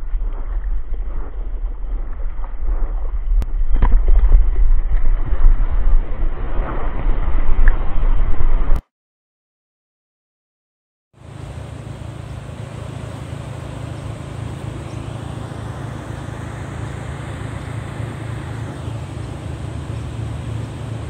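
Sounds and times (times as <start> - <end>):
wind rumbling on microphone: 0.0 - 8.8.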